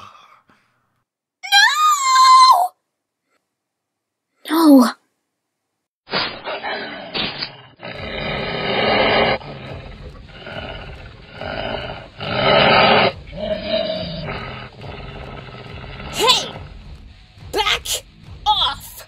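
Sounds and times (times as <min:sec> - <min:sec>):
monsters growling and roaring: 0:06.4 - 0:16.8.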